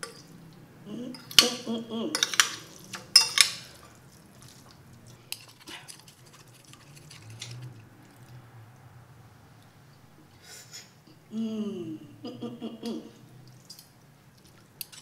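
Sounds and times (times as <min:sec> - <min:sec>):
cutlery scraping a ceramic plate: 0:02.2 - 0:03.7, 0:05.3 - 0:07.7, 0:14.8 - 0:15.0.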